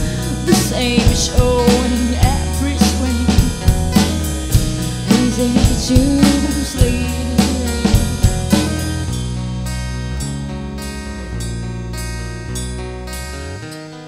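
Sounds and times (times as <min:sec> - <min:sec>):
woman singing: 0:00.0 - 0:08.8
drum kit beat: 0:00.0 - 0:09.4
strummed acoustic guitar: 0:00.0 - 0:14.0.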